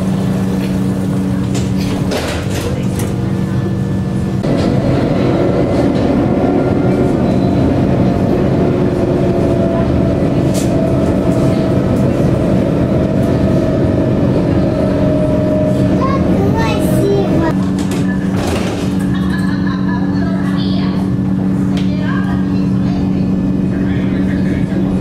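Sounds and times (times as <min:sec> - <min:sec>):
tram wheels rumbling on rails: 0:00.0 - 0:25.0.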